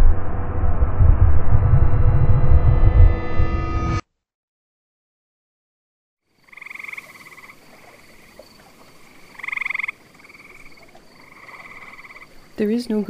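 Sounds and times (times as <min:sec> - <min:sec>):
frogs trilling: 0:06.3 - 0:13.0.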